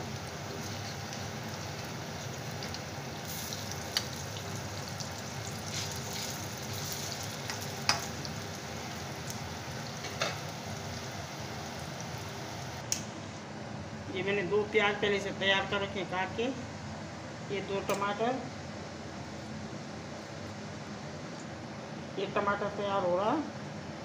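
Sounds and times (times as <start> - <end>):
food deep-frying in oil: 0.0 - 12.8.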